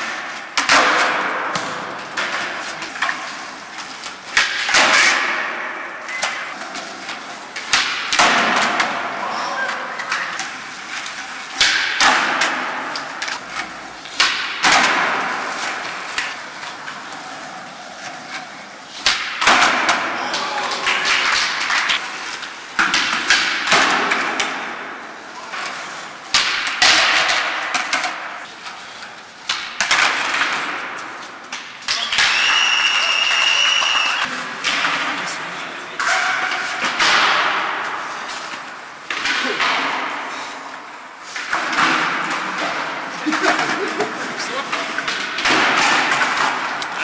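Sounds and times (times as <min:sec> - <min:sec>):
skateboard tails popping: 0:00.0 - 0:28.5, 0:29.4 - 0:35.4
skateboard wheels rolling: 0:00.0 - 0:47.0
skateboards slapping and clattering: 0:00.0 - 0:47.0
high steady whistle: 0:32.2 - 0:34.2.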